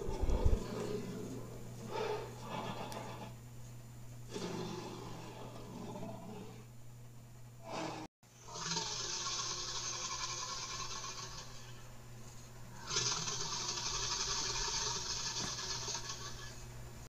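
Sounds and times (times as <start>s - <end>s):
long harsh dinosaur roar: 4.3s - 6.6s, 7.7s - 11.7s, 12.8s - 16.2s
rough dinosaur roar: 4.3s - 6.7s.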